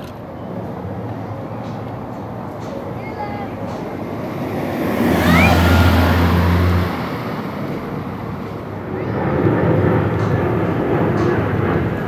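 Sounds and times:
broad rumble of passing traffic: 0.0 - 12.0
low engine hum: 3.7 - 12.0.

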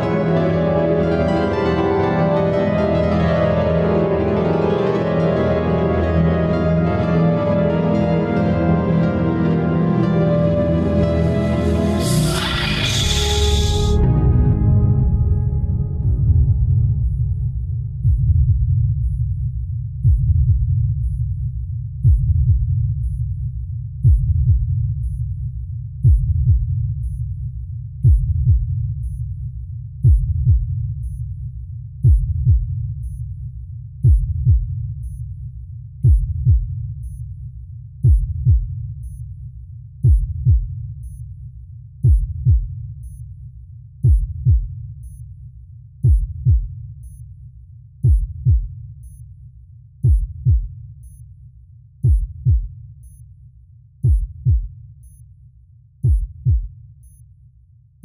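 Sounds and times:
low synth rumble: 11.0 - 20.9
heartbeat double thump: 16.0 - 21.3, 22.0 - 23.2, 24.0 - 25.2, 26.0 - 27.2, 28.0 - 29.2, 30.0 - 31.2, 32.0 - 33.2, 34.0 - 35.2, 36.0 - 37.2, 38.0 - 39.2, 40.0 - 41.2, 42.0 - 43.2, 44.0 - 45.2, 46.0 - 46.7, 48.0 - 48.8, 50.0 - 50.8, 52.0 - 52.7, 54.0 - 54.7, 56.0 - 56.7.

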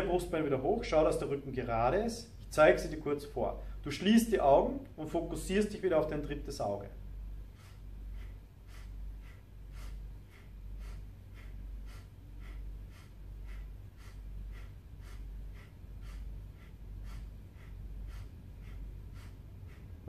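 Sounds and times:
man breathing rapidly through nose: 2.2 - 5.0, 6.9 - 20.0.

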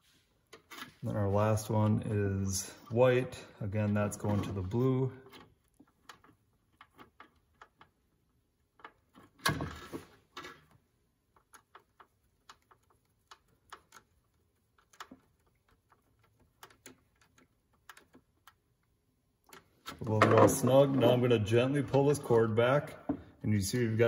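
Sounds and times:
small clicks and taps: 5.2 - 9.4, 10.4 - 20.2.

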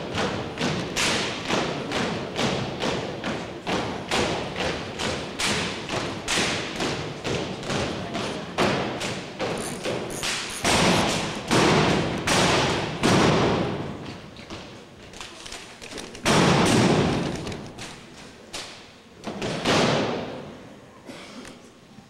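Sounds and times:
echoing heavy impacts: 0.0 - 14.7, 16.2 - 18.1
rifles and boots striking: 0.0 - 14.7, 15.5 - 18.0.

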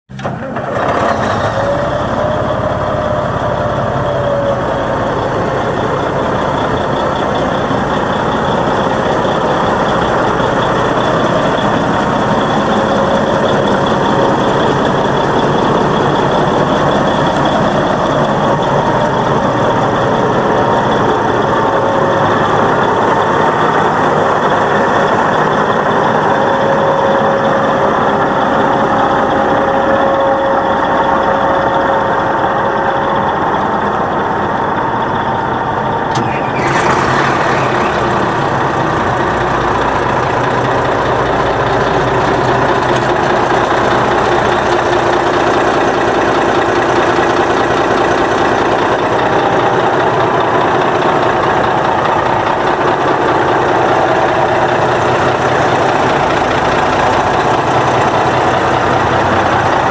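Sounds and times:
diesel engine idling: 0.1 - 59.9.

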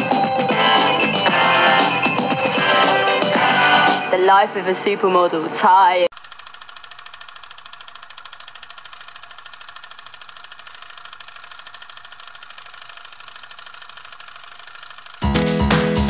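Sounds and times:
loud music: 0.0 - 4.2, 15.2 - 16.0
fast mechanical rattle: 6.1 - 15.2.

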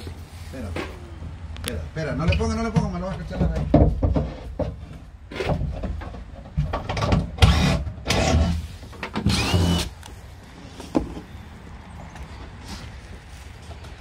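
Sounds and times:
power drill driving screws: 7.4 - 8.6, 9.2 - 10.0
drill motor whine: 9.3 - 9.9.

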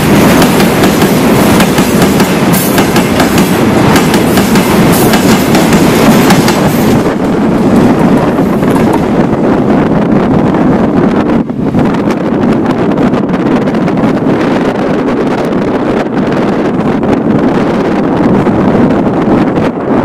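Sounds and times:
wheels clacking over rail joints: 0.0 - 9.2
freight train rumbling past: 0.0 - 20.0.

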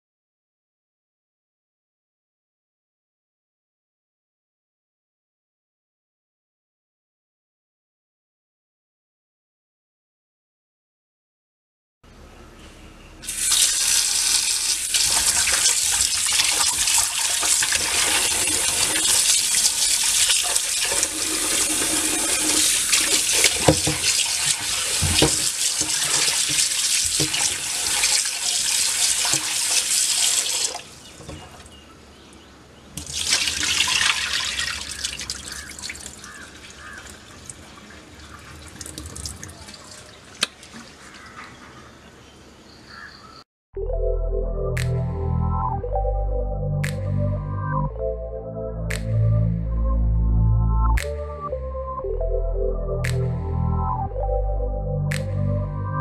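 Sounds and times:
quiet splashing: 13.2 - 31.8, 33.0 - 41.8
hand rubbing chicken in water: 13.3 - 31.6
tap water running into steel bowl: 13.3 - 31.6, 33.0 - 40.7.

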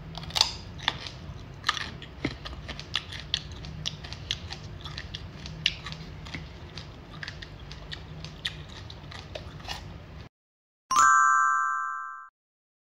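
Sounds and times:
person chewing crisp vegetable: 0.0 - 10.3.

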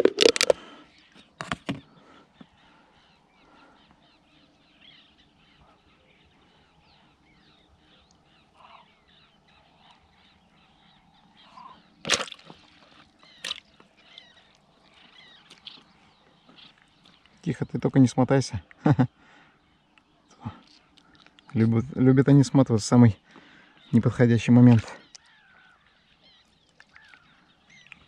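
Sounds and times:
birds chirping: 0.0 - 28.0.

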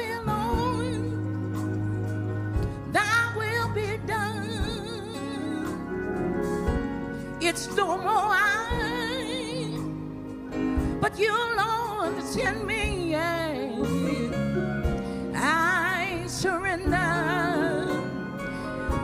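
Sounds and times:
person singing gospel song: 0.0 - 1.9, 7.4 - 10.0, 10.6 - 19.0.

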